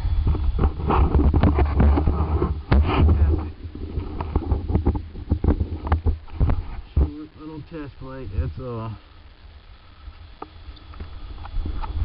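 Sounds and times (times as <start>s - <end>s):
wind buffeting microphone: 0.0s - 7.2s.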